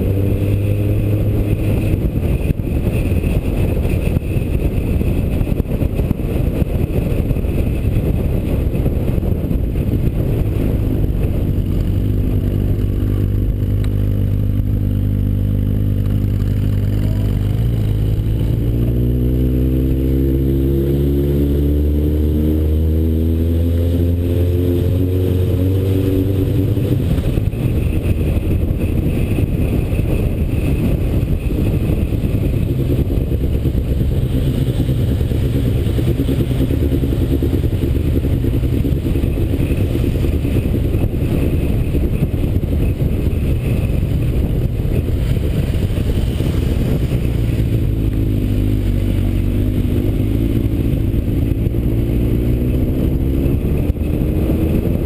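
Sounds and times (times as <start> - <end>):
motorcycle engine running: 0.0 - 55.0
wind noise on microphone: 0.0 - 55.0.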